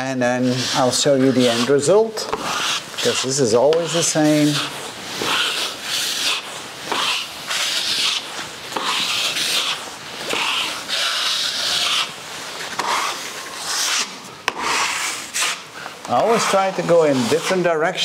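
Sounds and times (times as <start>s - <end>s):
drywall knife scraping wall: 0.0s - 18.0s.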